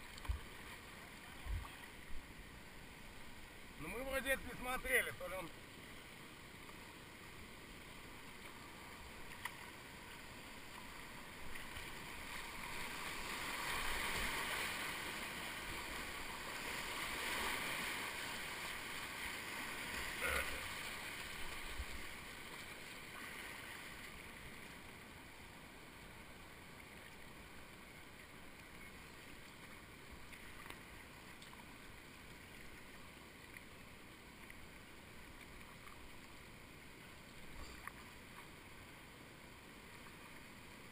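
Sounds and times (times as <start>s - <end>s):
rushing river water: 0.0s - 40.9s
water splashing over kayak: 8.1s - 24.6s.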